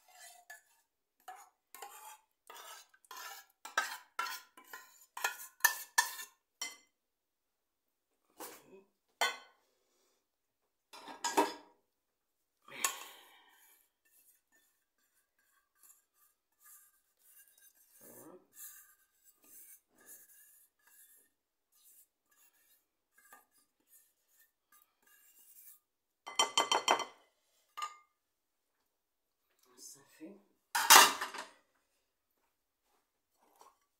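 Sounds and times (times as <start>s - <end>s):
utensils scraping dishes: 0.0s - 6.8s.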